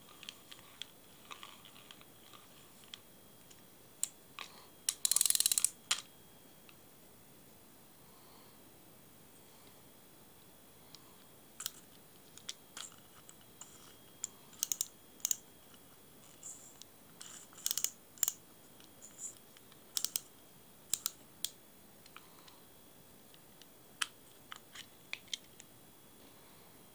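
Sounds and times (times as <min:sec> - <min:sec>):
fishing reel clicking: 0:04.9 - 0:05.8, 0:14.6 - 0:15.4, 0:17.6 - 0:18.4.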